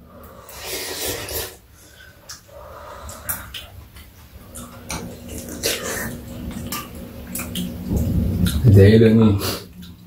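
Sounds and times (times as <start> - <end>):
wet noodle slurps: 0.4 - 1.7.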